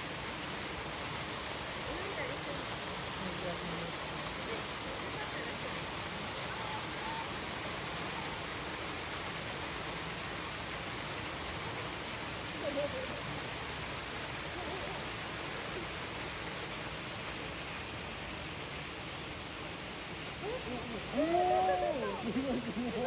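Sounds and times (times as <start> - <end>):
faint voice-like sound: 1.7 - 8.8, 11.5 - 16.8, 19.7 - 23.0.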